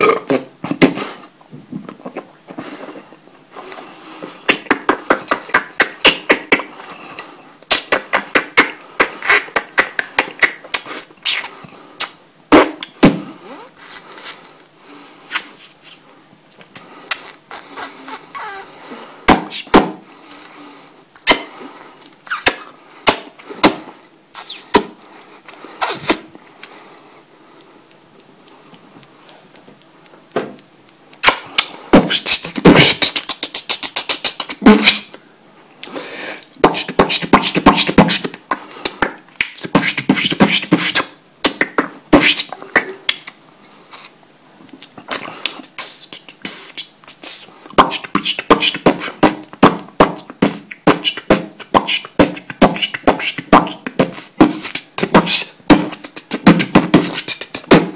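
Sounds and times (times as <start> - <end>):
man beatboxing: 4.5 - 6.7, 7.7 - 14.1, 17.2 - 19.8, 31.2 - 35.2, 36.6 - 43.3, 45.1 - 57.9.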